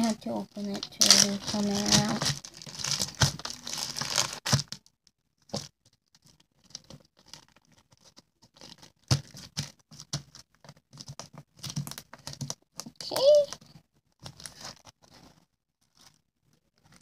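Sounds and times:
plastic bag crinkling: 0.0 - 4.8, 5.4 - 13.5.

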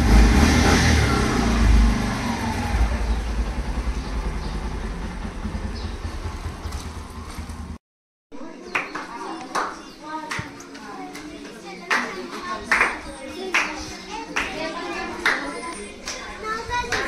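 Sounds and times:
motorcycle engine revving: 0.0 - 7.8.

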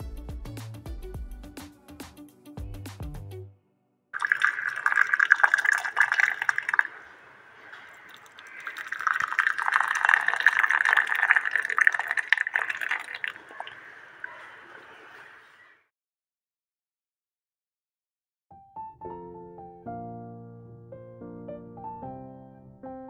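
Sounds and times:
tea pouring into glass cup: 4.2 - 14.4
tea bubbling at a boil: 4.2 - 14.7.

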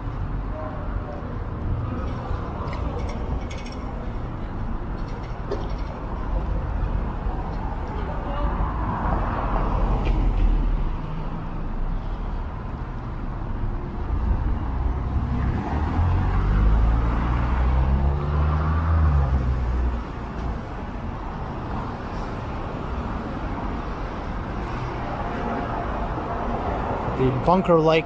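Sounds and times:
city street traffic: 0.0 - 28.0
vehicle engine passing: 6.4 - 28.0.

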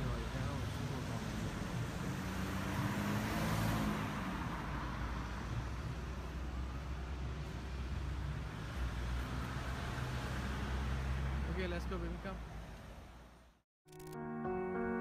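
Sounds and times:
car passing: 0.0 - 13.5
traffic rumble: 0.0 - 13.6.

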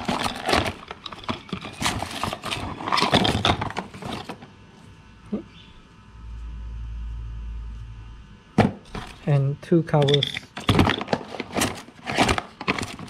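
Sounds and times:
cardboard boxes rustling and scraping: 0.0 - 4.4, 10.6 - 13.0.

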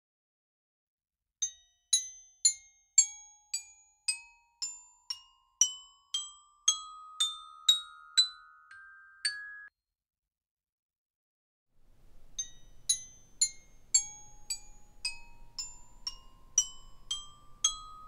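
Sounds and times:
glockenspiel rising scale: 6.1 - 9.7, 12.4 - 18.0.

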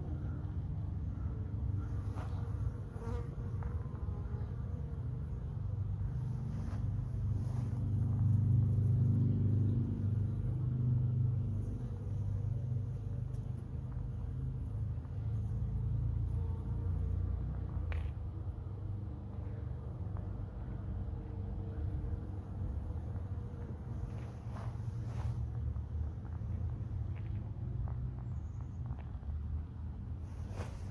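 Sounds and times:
bumblebee buzzing: 2.0 - 10.5, 11.1 - 14.6.

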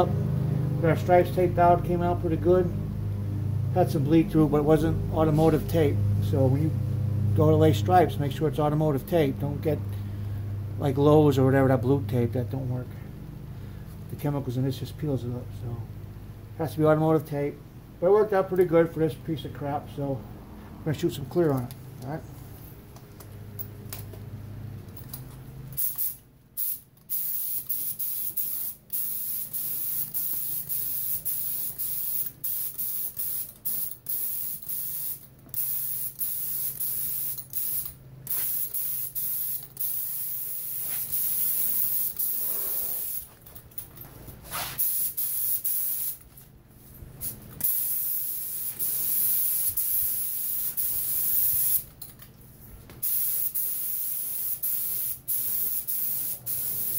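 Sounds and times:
low steady hum: 0.0 - 26.6
spray gun hissing: 25.8 - 43.3, 44.5 - 46.2, 47.6 - 51.8, 53.0 - 56.9.

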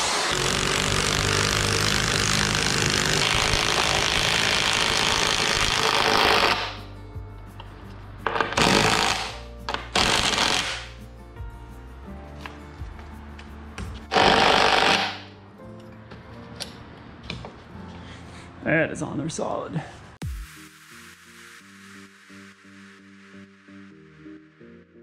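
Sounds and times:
power drill driving bolt into wood: 0.0 - 6.8, 8.3 - 10.9, 14.1 - 15.2
background music: 0.1 - 25.0.

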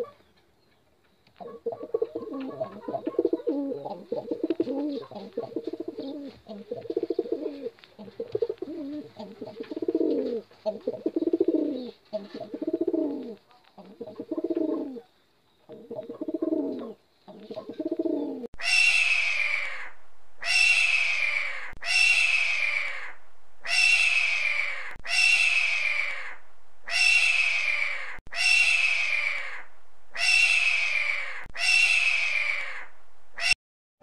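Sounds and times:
pigeons cooing: 0.0 - 0.2, 1.4 - 18.5
bird of prey screaming: 18.6 - 33.6.

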